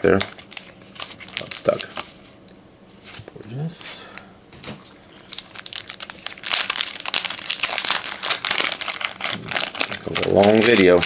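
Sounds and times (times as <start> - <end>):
card packaging crinkling: 0.0 - 2.2, 5.1 - 11.0.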